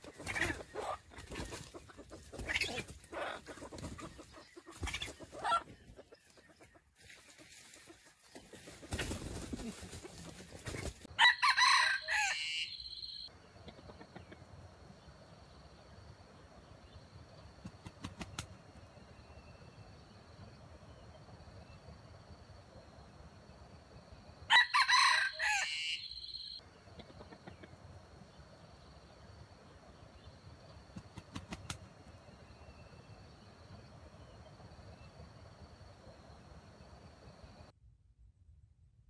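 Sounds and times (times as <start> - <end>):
rooster crowing: 11.2 - 13.2, 24.5 - 26.6.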